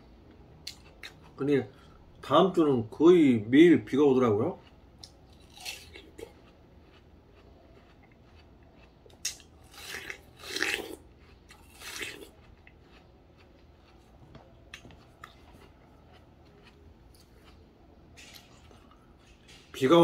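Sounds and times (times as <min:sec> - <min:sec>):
chewing: 0:00.3 - 0:02.0, 0:04.5 - 0:19.8
crunchy bites into watermelon: 0:05.0 - 0:17.6.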